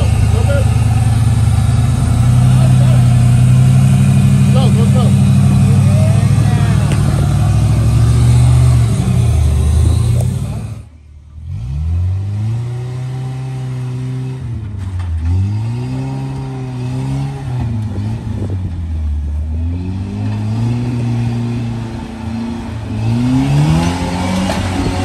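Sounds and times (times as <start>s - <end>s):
buggy engine revving: 0.0s - 25.0s.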